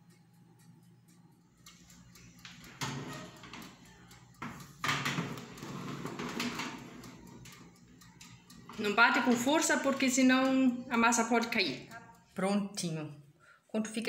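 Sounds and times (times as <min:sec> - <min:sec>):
baking pan scraping on oven rack: 0:02.7 - 0:03.8, 0:04.4 - 0:07.7.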